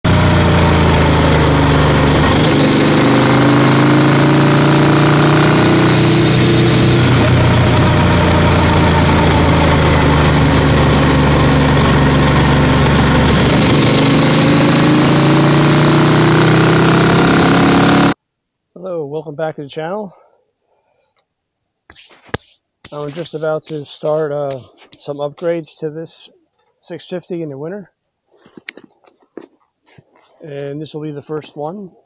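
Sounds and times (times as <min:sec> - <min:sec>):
motorcycle engine running: 0:00.0 - 0:18.2.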